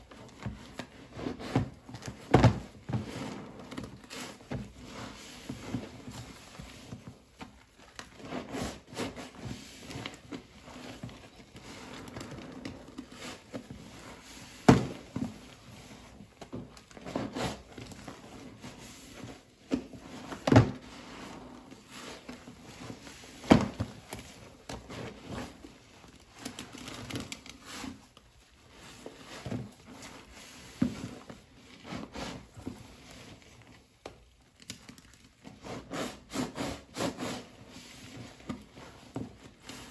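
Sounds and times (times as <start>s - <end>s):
sharp sponge strokes: 35.6s - 38.0s.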